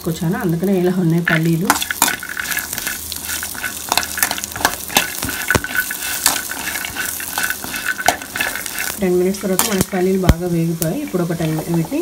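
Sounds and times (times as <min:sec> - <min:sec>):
light sizzle in pan: 0:00.0 - 0:12.0
steel spoon scraping pan: 0:01.2 - 0:10.0.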